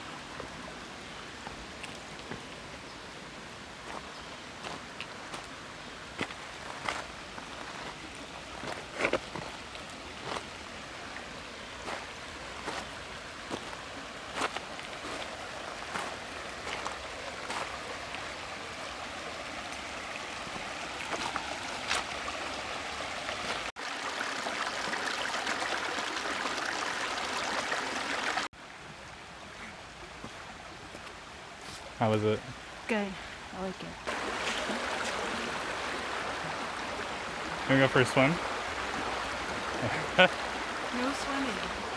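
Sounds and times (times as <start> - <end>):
creek running over rocks: 0.0 - 41.9
footsteps on loose stones: 6.2 - 10.5, 11.9 - 17.8, 21.0 - 22.1.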